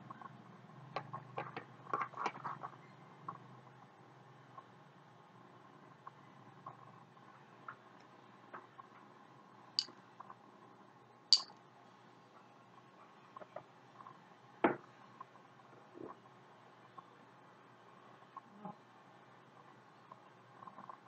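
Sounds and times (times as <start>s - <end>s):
sharp high clicks: 11.3s - 11.6s.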